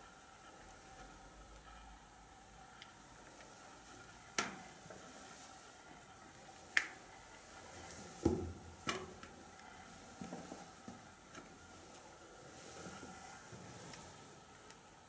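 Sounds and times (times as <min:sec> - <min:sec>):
low hiss: 0:00.0 - 0:15.0.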